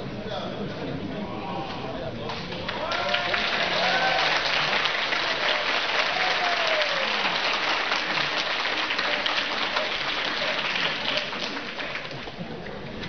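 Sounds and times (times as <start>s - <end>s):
audience applauding: 2.4s - 12.8s.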